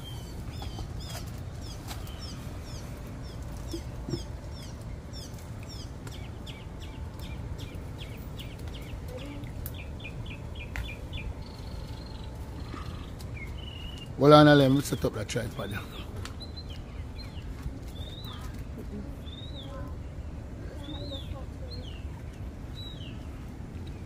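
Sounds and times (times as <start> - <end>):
small birds chirping: 0.0 - 24.0
steady low rumble: 0.0 - 24.0.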